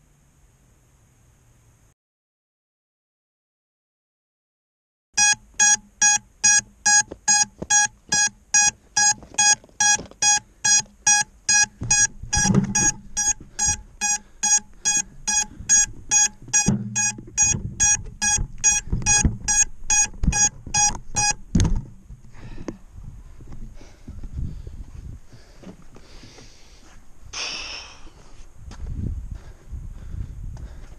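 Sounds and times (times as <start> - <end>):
high locator beeping: 5.2 - 21.4.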